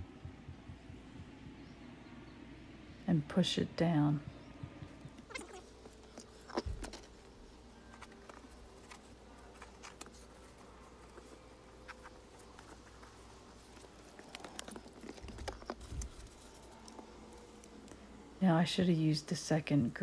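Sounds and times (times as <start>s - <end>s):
compound scraping and ticking: 7.9s - 18.0s.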